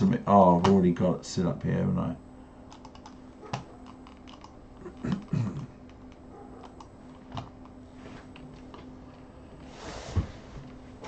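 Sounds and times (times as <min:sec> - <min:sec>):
faint steady hum: 0:00.0 - 0:11.0
keyboard keys clicking: 0:02.7 - 0:07.8.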